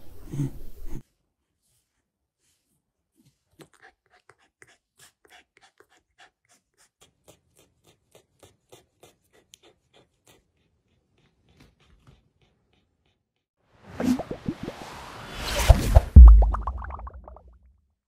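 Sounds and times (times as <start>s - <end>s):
low rumble: 15.3s - 17.4s.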